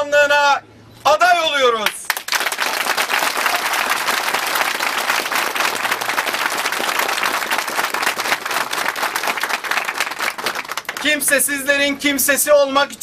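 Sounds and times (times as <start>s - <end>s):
crowd applauding: 2.1s - 11.4s.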